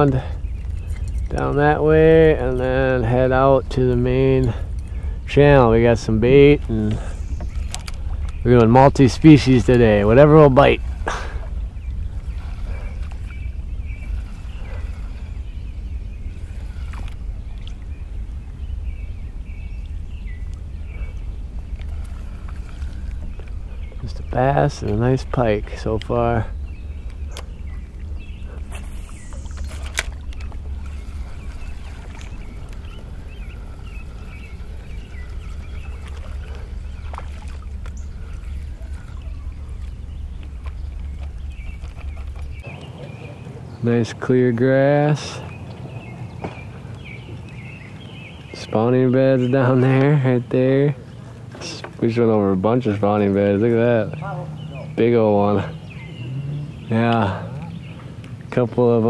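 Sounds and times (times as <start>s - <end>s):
low rumble of canoe on water: 0.0s - 59.0s
faint clicks: 6.6s - 8.7s, 16.9s - 17.8s, 21.7s - 24.0s, 27.0s - 42.9s.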